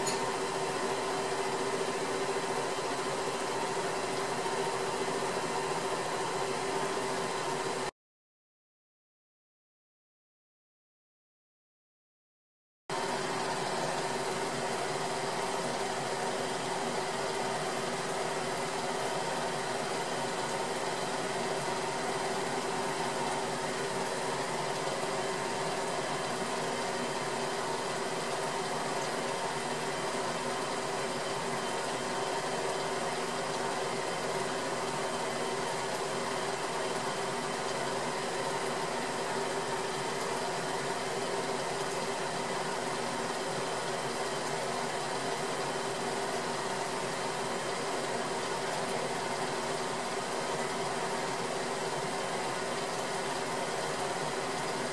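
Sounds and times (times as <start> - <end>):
mechanical hum with hiss: 0.0 - 7.9.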